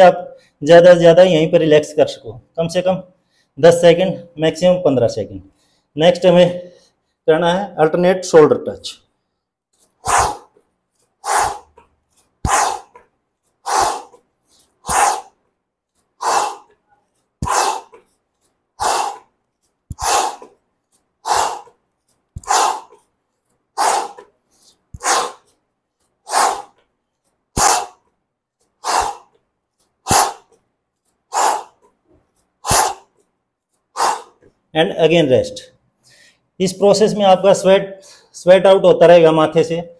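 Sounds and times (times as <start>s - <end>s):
man exhaling forcefully: 10.0s - 10.6s, 11.2s - 11.8s, 12.4s - 13.0s, 13.6s - 15.4s, 16.2s - 16.8s, 17.4s - 18.1s, 18.8s - 19.3s, 19.9s - 20.6s, 21.2s - 21.8s, 22.4s - 23.1s, 23.8s - 25.5s, 26.3s - 26.8s, 27.6s - 28.0s, 28.8s - 29.4s, 30.1s - 30.6s, 31.3s - 31.8s, 32.6s - 33.2s, 34.0s - 34.4s.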